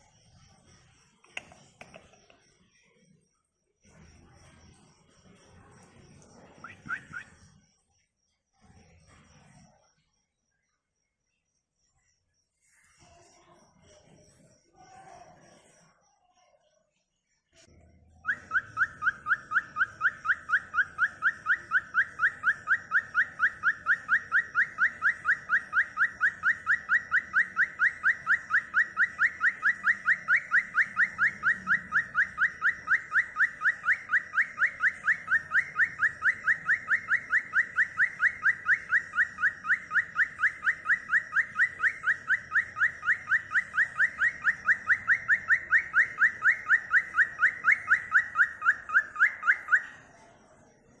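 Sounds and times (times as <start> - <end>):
cockatiel chirping: 18.2 - 49.9.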